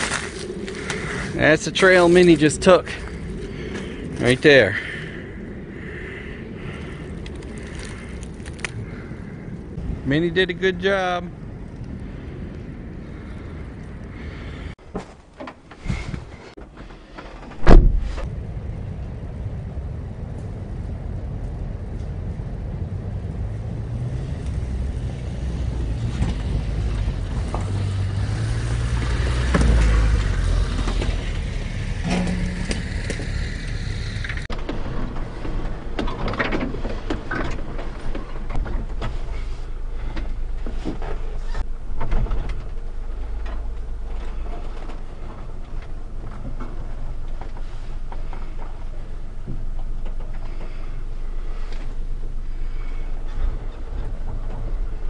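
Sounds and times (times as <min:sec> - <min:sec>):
knocks and rattles from truck body: 0:16.6 - 0:18.3
loud thump: 0:17.5 - 0:18.3, 0:32.0 - 0:33.5
truck engine running: 0:18.5 - 0:34.5.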